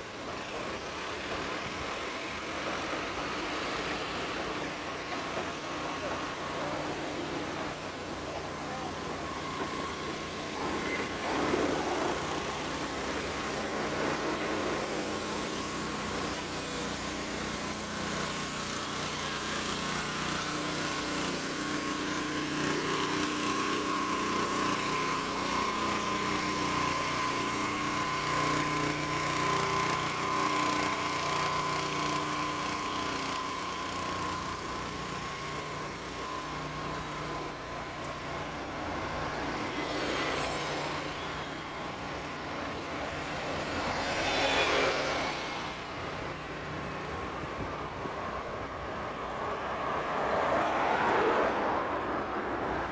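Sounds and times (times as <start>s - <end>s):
bus passing close: 3.8s - 52.9s
vehicles passing: 33.2s - 52.9s.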